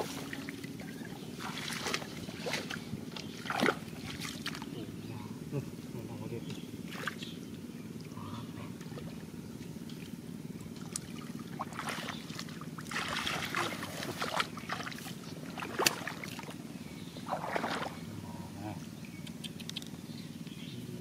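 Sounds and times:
muddy water sloshing and splashing: 0.0 - 5.0, 6.8 - 18.3
steady low rumble: 0.0 - 21.0
sharp splash or knock: 15.6 - 16.2, 17.3 - 17.9.

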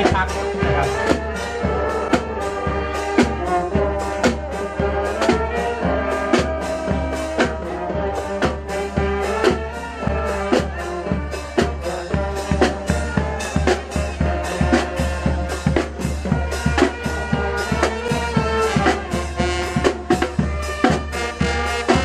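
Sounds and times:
brass holding sustained notes: 0.0 - 22.0
steady drum beat: 0.0 - 22.0.

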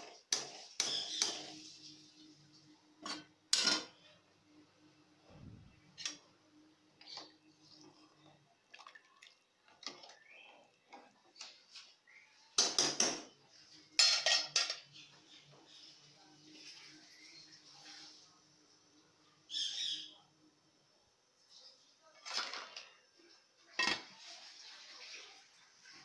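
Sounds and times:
metal utensils clinking on pot: 3.0 - 4.0, 14.0 - 14.9.

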